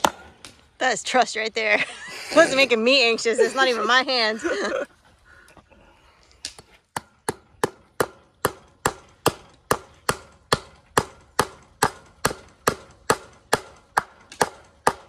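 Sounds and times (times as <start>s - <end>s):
hammer striking wire on post: 6.5s - 15.0s.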